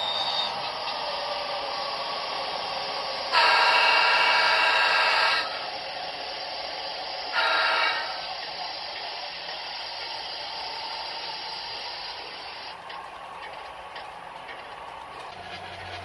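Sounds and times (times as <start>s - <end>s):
model trains rolling: 0.0s - 16.0s
model locomotive horn blasts: 3.2s - 5.6s, 7.3s - 8.3s.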